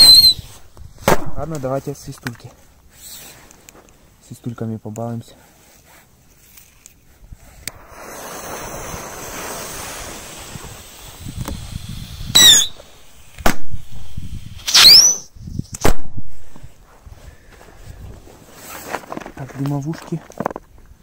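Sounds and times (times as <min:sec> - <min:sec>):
shrill firework whistles: 0:00.0 - 0:00.7, 0:02.9 - 0:03.4, 0:07.7 - 0:15.9
fuse hissing: 0:07.6 - 0:15.2
firework bang: 0:07.7 - 0:14.1.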